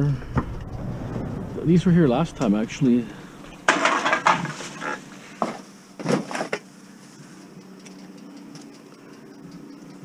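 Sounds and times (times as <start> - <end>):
bottles and bags clattering: 3.5 - 6.6.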